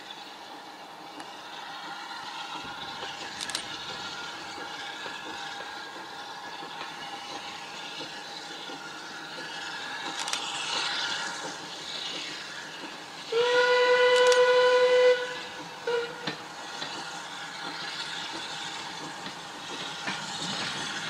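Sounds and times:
steam locomotive running: 0.0s - 21.0s
steam whistle: 13.3s - 16.3s.

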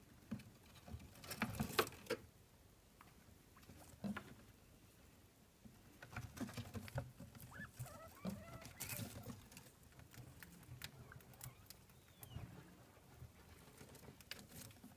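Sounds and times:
animals scrabbling in cage: 6.0s - 14.9s.

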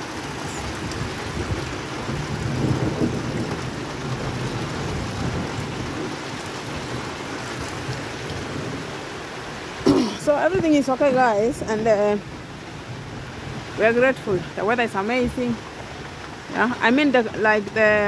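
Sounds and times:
heavy rain: 0.0s - 18.0s
water gushing from gutter: 0.0s - 18.0s.

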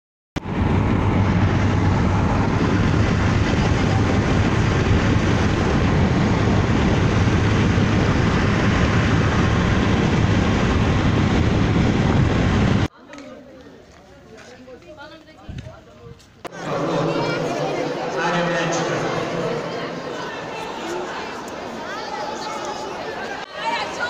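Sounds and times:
road and wind noise inside vehicle: 0.4s - 12.9s.

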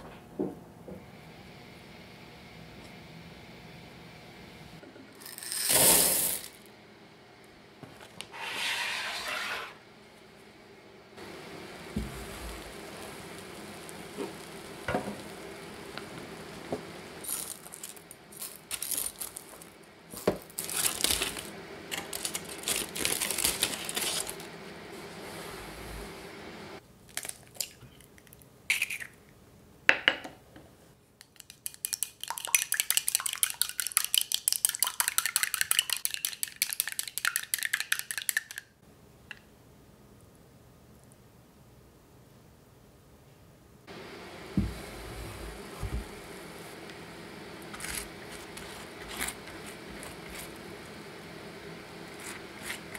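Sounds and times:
aluminium foil crinkling: 17.2s - 24.5s, 27.1s - 29.0s, 47.7s - 50.7s
egg beaten with chopsticks in bowl: 31.2s - 38.6s.

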